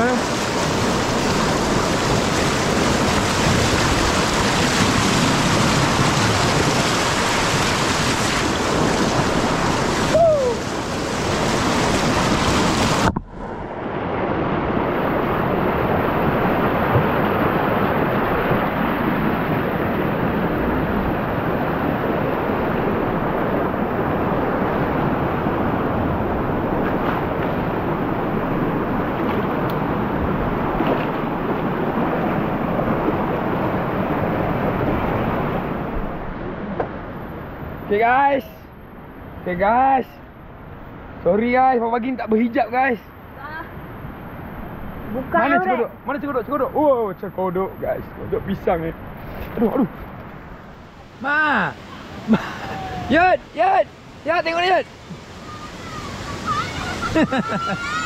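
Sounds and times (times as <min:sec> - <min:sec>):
river rapids rushing over boulders: 0:00.0 - 0:13.1, 0:50.3 - 0:58.0.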